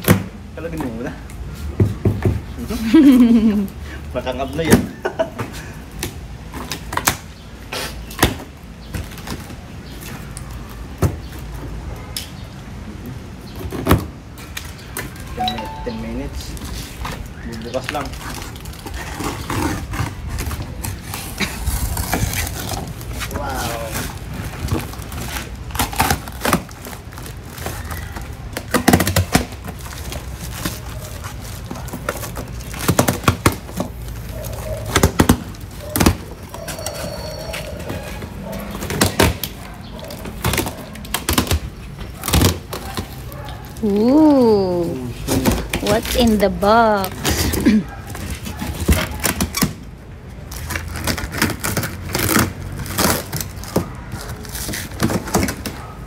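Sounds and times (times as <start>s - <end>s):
plastic wrapping crackling and snapping: 16.5s - 37.0s, 48.1s - 55.9s.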